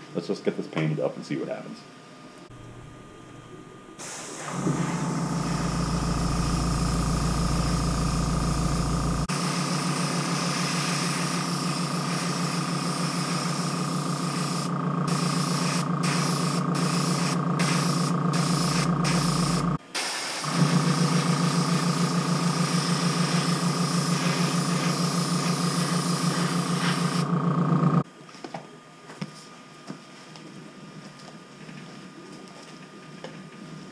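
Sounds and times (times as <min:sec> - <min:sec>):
compressor humming: 0:02.4 - 0:28.1
airbrush spray hiss: 0:04.0 - 0:27.3.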